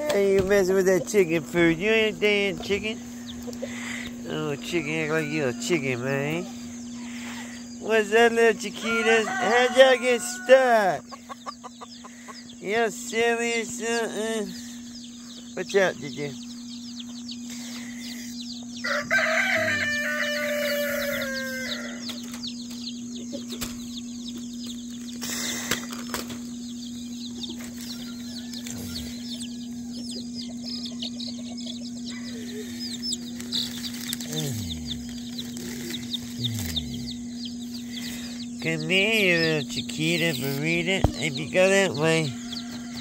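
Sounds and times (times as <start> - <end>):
chicks peeping: 0.0 - 43.0
steady low hum: 0.0 - 43.0
rooster crowing: 4.3 - 6.4, 8.6 - 11.1, 18.8 - 22.2, 27.8 - 33.0, 42.2 - 43.0.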